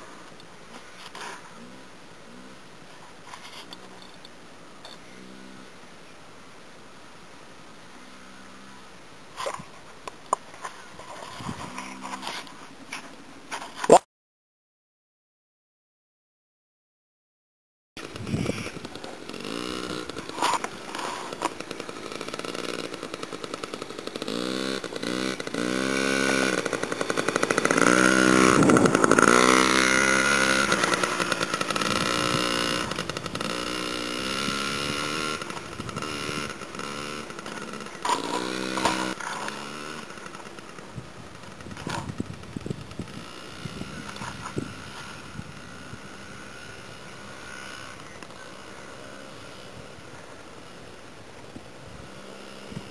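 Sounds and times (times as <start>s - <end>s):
dirt bike engine revving: 4.9s - 5.8s, 18.0s - 52.9s.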